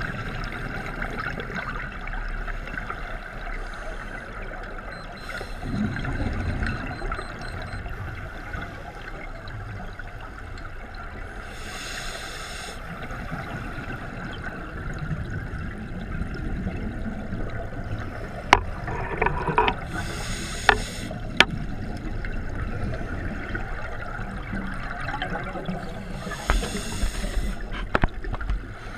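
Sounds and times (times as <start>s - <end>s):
scuba regulator breathing bubbles: 19.8s - 21.2s, 26.0s - 28.0s
brief air hisses: 20.0s - 21.1s, 26.2s - 27.7s.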